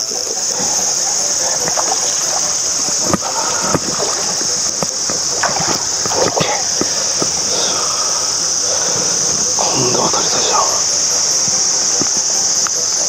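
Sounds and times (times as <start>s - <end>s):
insects droning: 0.0s - 13.0s
fish splashing at water surface: 0.5s - 9.6s.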